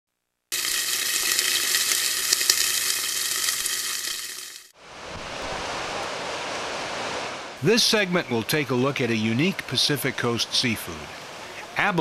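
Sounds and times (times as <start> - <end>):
sizzling hiss with crackles: 0.5 - 4.7.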